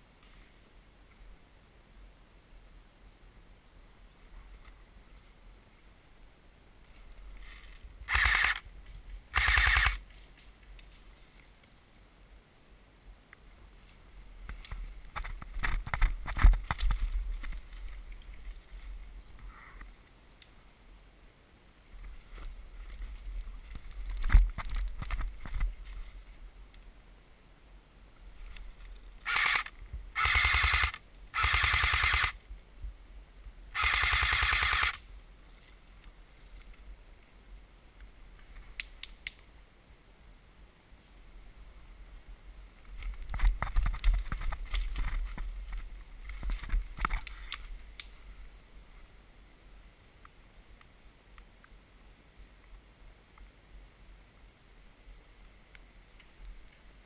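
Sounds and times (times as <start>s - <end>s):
airsoft gun firing bursts: 8.1s - 8.6s, 9.3s - 10.0s, 29.2s - 32.4s, 33.8s - 35.0s.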